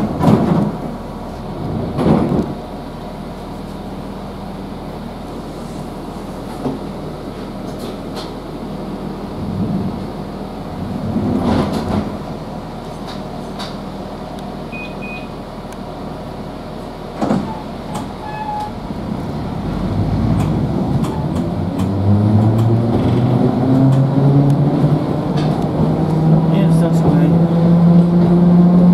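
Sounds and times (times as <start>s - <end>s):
train rumble: 0.0s - 28.9s.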